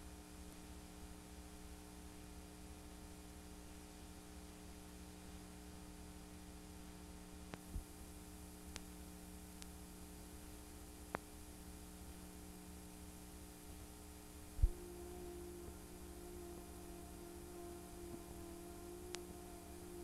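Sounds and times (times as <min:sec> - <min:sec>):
electrical hum: 0:00.0 - 0:20.0
faint clicks: 0:08.7 - 0:09.0, 0:19.0 - 0:19.3
higher steady tone: 0:14.6 - 0:20.0.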